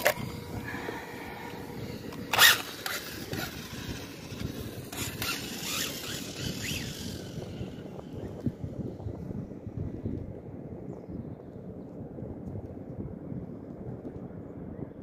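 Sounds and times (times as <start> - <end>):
toy car motor whine: 0.0 - 8.2
wind on microphone: 0.0 - 15.0.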